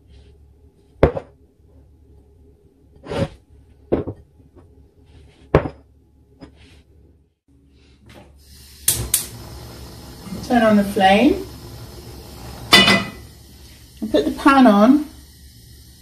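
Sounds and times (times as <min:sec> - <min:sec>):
faint steady hum: 0:06.0 - 0:16.0.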